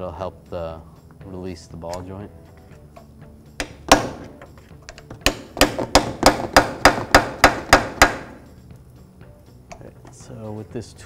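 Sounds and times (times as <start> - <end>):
hammer striking steel pry bar: 3.6 - 8.4.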